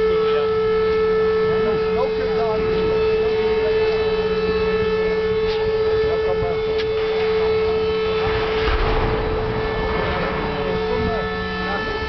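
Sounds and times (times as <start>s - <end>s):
ship horn blast: 0.0s - 12.0s
water rushing and rumbling: 7.0s - 12.0s.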